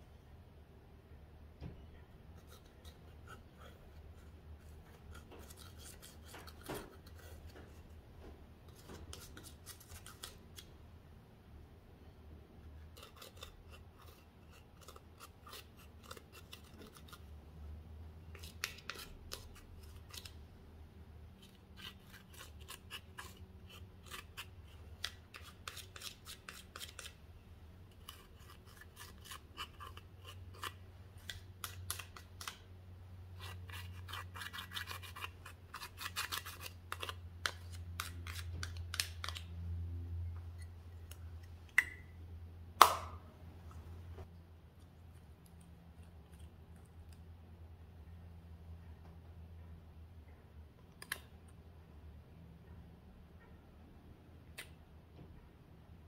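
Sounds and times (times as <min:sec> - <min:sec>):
tool scratching eyeshadow: 0:02.4 - 0:07.8, 0:12.8 - 0:17.3, 0:21.4 - 0:27.2, 0:27.9 - 0:32.2, 0:33.4 - 0:39.4.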